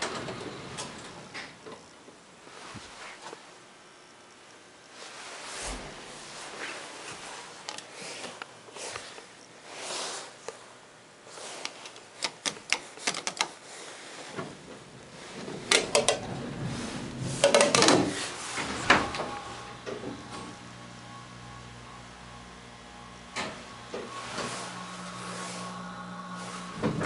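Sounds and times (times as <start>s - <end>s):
elevator doors clattering and clunking: 0.0s - 1.6s, 14.4s - 21.2s, 26.1s - 27.0s.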